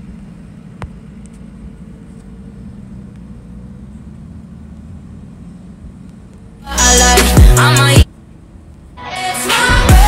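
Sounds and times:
vehicle engine idling: 0:00.0 - 0:10.0.

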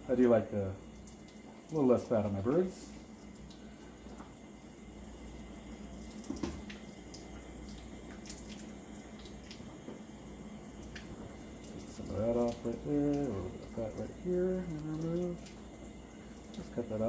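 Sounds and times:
tap running into sink: 0:06.2 - 0:06.8.

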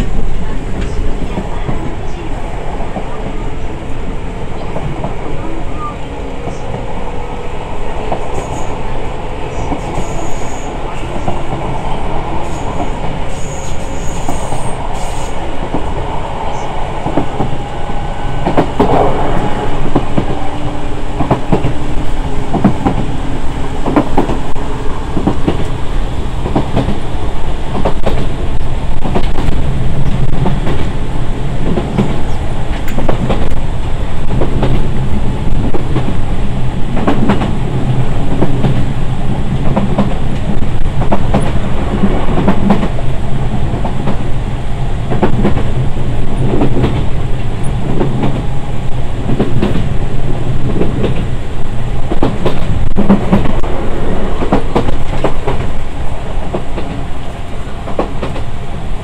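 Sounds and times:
train rumble from inside car: 0:00.0 - 0:59.0.

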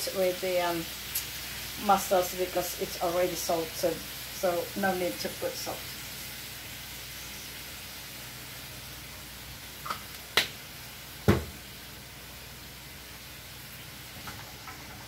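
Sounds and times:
faint steady hiss: 0:00.0 - 0:15.0
heavy knock: 0:11.3 - 0:11.6.

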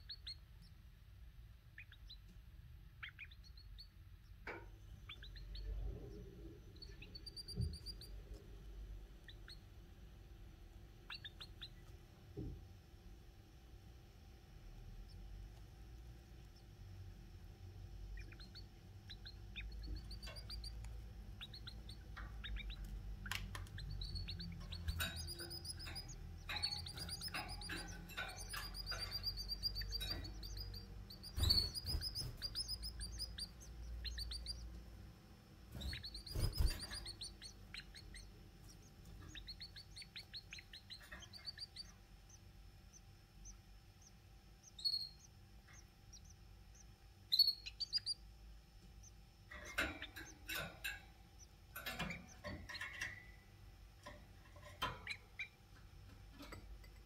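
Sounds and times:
nestlings high-pitched cheeps: 0:28.4 - 0:34.6.

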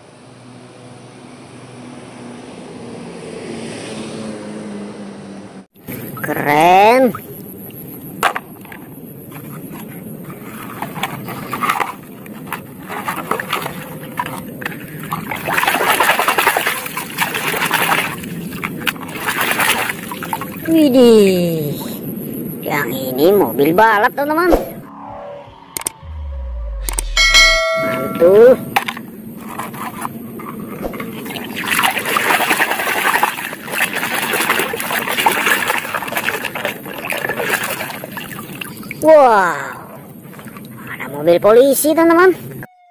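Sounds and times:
muddy water splashing: 0:05.9 - 0:21.1, 0:29.4 - 0:41.2
toy car scrubbed in puddle: 0:09.3 - 0:20.2, 0:29.4 - 0:38.3.

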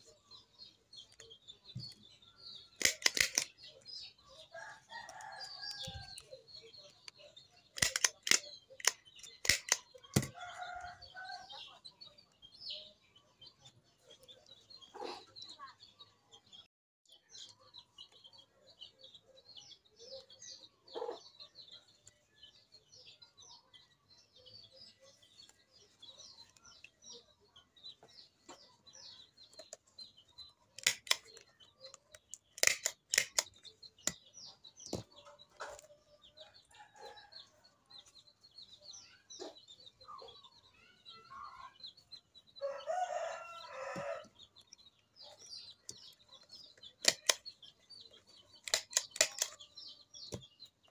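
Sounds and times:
small birds chirping: 0:00.0 - 0:50.9
stapler snapping shut: 0:02.8 - 0:03.5, 0:07.8 - 0:10.3, 0:30.8 - 0:31.3, 0:32.6 - 0:33.5, 0:47.0 - 0:47.4, 0:48.6 - 0:49.5
rooster crowing: 0:42.6 - 0:44.3.

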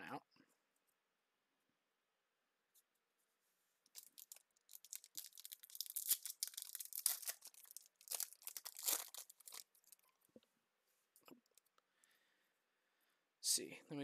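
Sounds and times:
foil wrapper tearing and crinkling: 0:03.9 - 0:10.0.

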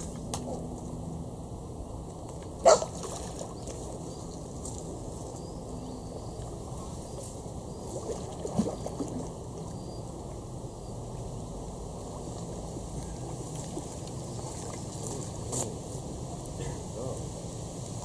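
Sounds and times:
fish splashing in water: 0:02.4 - 0:05.4, 0:06.3 - 0:10.3, 0:11.7 - 0:15.5.

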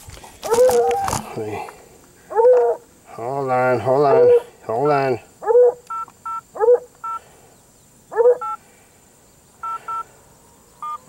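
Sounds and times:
dog yelping: 0:00.4 - 0:01.2, 0:02.3 - 0:02.8, 0:04.1 - 0:04.5, 0:05.4 - 0:05.8, 0:06.6 - 0:06.9, 0:08.1 - 0:08.6
phone keypad beeps: 0:05.9 - 0:06.4, 0:08.4 - 0:08.6, 0:09.6 - 0:10.0.

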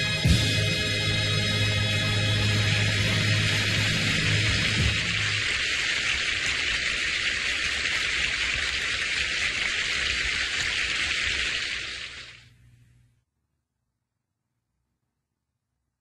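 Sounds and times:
audience applauding: 0:01.9 - 0:12.4.

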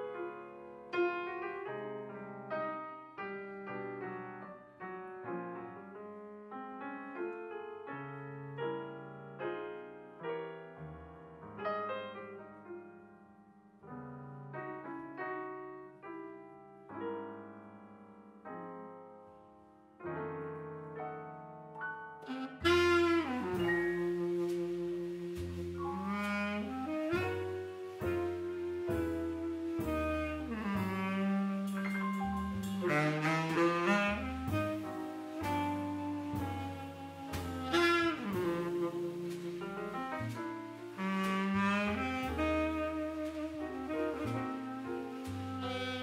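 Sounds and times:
solo jazz piano: 0:00.0 - 0:46.0.

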